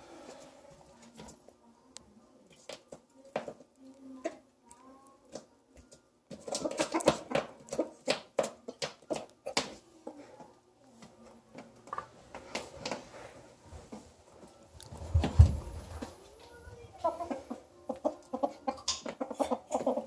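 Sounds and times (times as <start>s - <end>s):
beaks and claws clicking on tile: 2.5s - 13.1s, 17.9s - 20.0s
chickens clucking: 6.3s - 8.2s, 16.8s - 20.0s.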